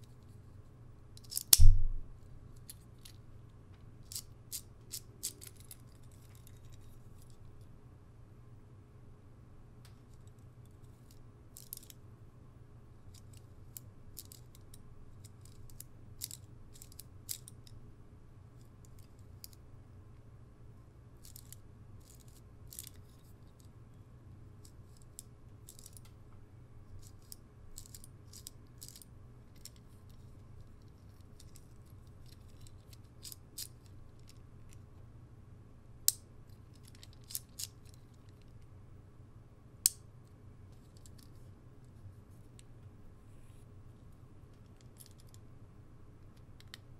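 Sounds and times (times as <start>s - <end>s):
low steady hum: 0.0s - 46.9s
small plastic parts clicking: 1.2s - 1.9s, 4.0s - 7.4s, 10.1s - 12.0s, 13.1s - 17.8s, 21.2s - 23.7s, 24.6s - 26.2s, 27.0s - 34.8s, 36.1s - 38.6s, 46.2s - 46.9s
sharp snap: 1.4s - 2.2s.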